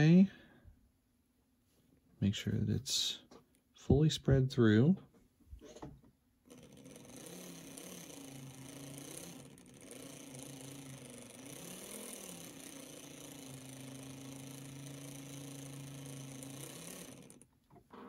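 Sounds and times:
small electric motor whirring: 6.5s - 18.0s.

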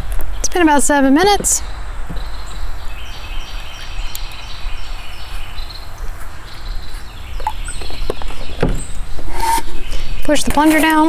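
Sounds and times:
insects chirping: 1.1s - 10.4s.

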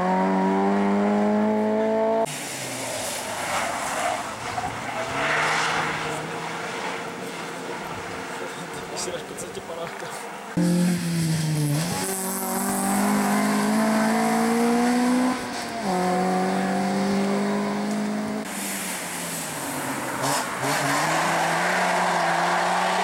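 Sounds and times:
car engine accelerating hard: 0.0s - 2.7s, 10.6s - 18.5s.

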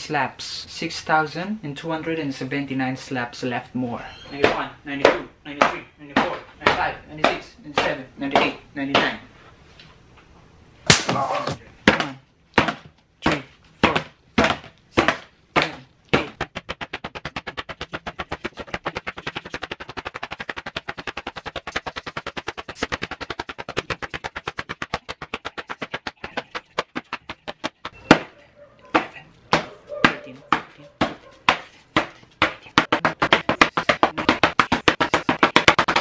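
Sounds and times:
hand slapping paper: 10.9s - 28.3s, 28.9s - 36.0s.

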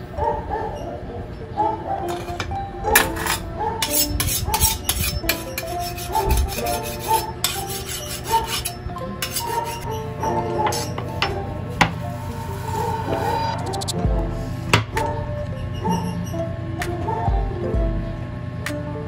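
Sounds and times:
background music: 0.0s - 19.0s
knife blade scraping: 3.0s - 14.0s.

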